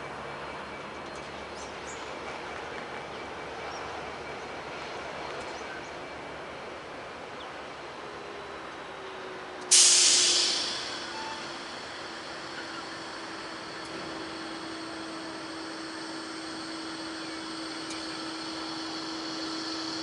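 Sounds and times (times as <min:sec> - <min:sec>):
locomotive rumble: 0:00.0 - 0:20.0
sudden loud hiss: 0:09.7 - 0:20.0.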